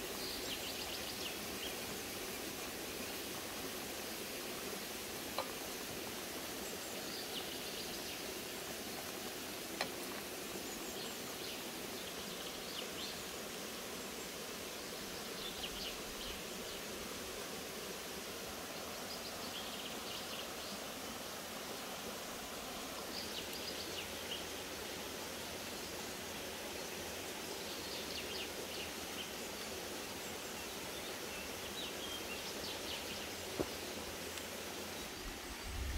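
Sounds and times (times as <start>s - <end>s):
open air hiss: 0.0s - 35.9s.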